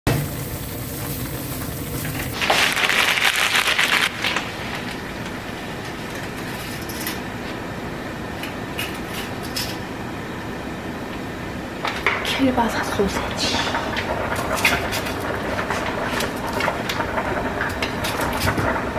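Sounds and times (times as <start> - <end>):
sauce bubbling in a pan: 0.1 - 5.6
water boiling in a pot: 0.1 - 18.9.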